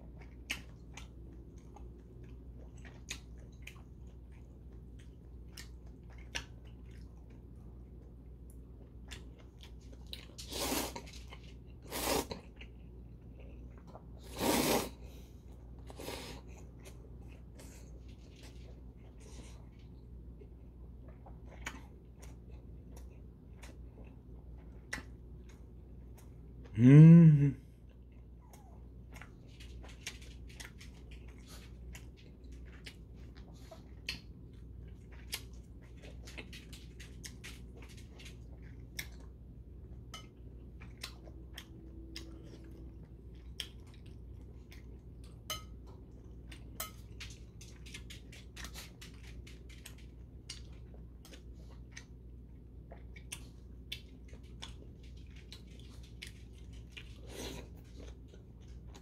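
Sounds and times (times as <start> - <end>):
slurping noodles: 10.4 - 11.0, 11.8 - 12.4, 14.2 - 15.0.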